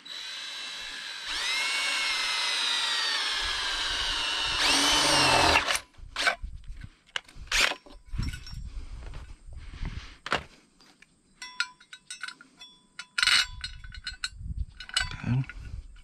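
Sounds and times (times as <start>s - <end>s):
cordless drill whining: 0.0s - 6.4s.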